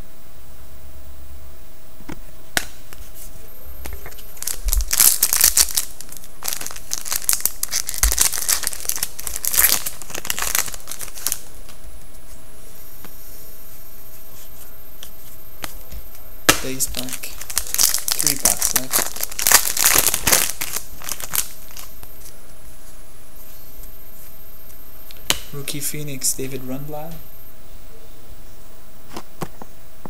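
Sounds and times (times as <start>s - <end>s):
foil wrapper tearing and crinkling: 4.1s - 11.4s, 16.5s - 22.0s.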